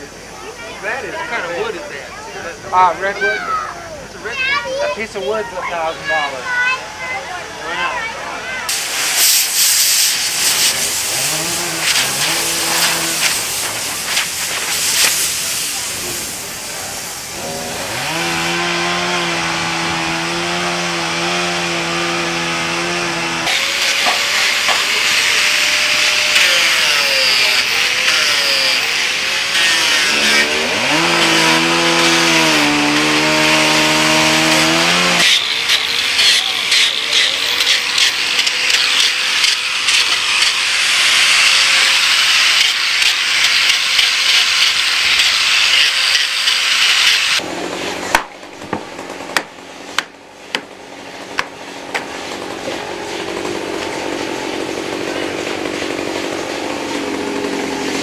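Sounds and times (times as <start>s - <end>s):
power carving tool motor: 8.7s - 15.2s, 17.2s - 47.4s
rotary disc sander grinding wood: 9.5s - 15.3s, 17.2s - 48.1s, 51.0s - 58.0s.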